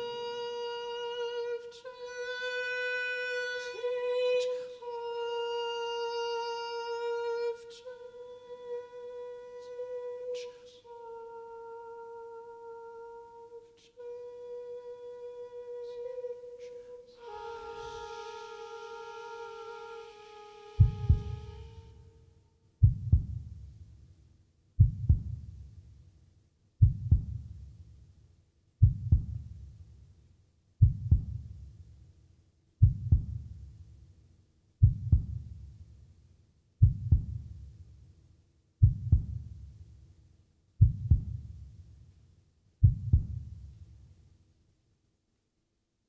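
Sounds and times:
heartbeat thumps: 0:20.8 - 0:21.9, 0:22.8 - 0:23.9, 0:24.8 - 0:25.9, 0:26.8 - 0:28.0, 0:28.8 - 0:29.8, 0:30.8 - 0:31.9, 0:32.8 - 0:33.9, 0:34.8 - 0:36.0, 0:36.8 - 0:37.9, 0:38.8 - 0:40.0, 0:40.8 - 0:41.8, 0:42.8 - 0:43.9.

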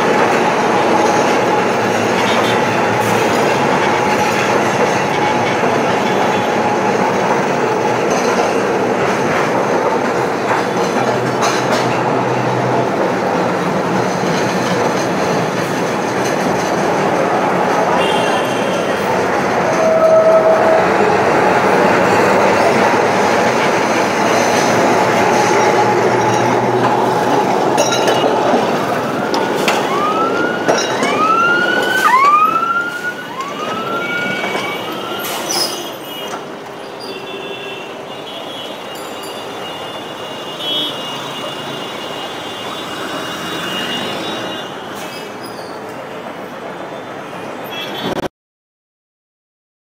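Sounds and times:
tram rumbling on rails: 0:00.0 - 0:48.3
rising siren-like whoops: 0:19.7 - 0:21.2, 0:29.6 - 0:35.5.

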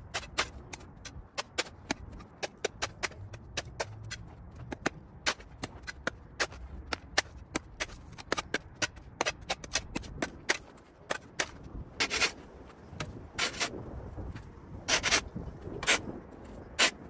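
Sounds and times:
debris scraped off pavement: 0:00.0 - 0:17.0.

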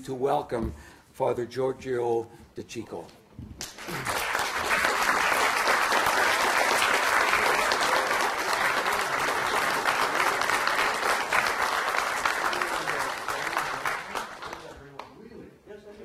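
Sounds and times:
audience applauding: 0:03.6 - 0:15.1.

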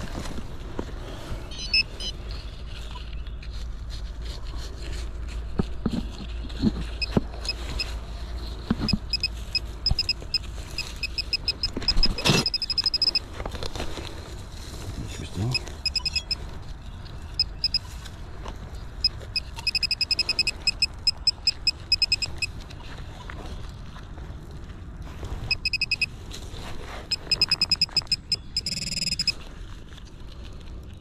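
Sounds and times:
rustling of dirt: 0:00.0 - 0:31.0
metal detector pinpointer beeping: 0:01.5 - 0:02.2, 0:06.9 - 0:07.9, 0:08.8 - 0:13.2, 0:15.5 - 0:16.4, 0:17.3 - 0:17.9, 0:19.0 - 0:22.6, 0:25.5 - 0:26.1, 0:27.1 - 0:29.4.

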